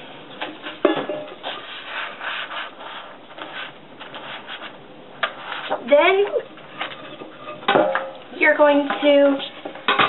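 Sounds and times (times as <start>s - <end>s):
paper rubbing against tin can: 1.4s - 5.9s.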